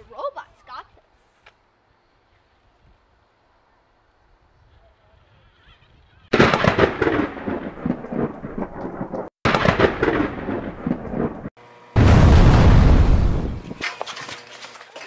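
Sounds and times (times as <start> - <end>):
thunder crackle: 6.3 - 13.8.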